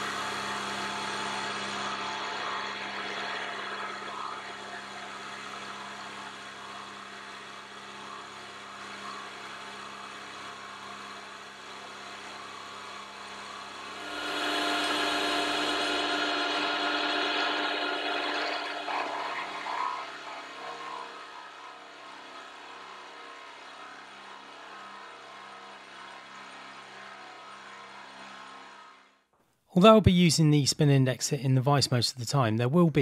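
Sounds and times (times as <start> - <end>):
milling machine cutting metal: 13.0 - 28.4.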